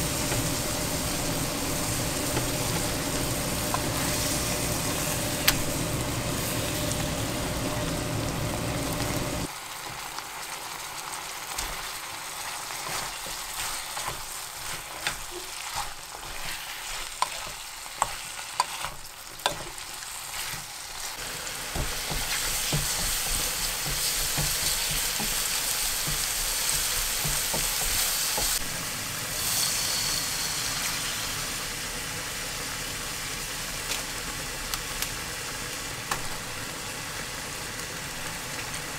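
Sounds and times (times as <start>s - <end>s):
food sizzling in a frying pan: 0.0s - 38.9s
spatula clicking and scraping pan: 11.5s - 28.6s.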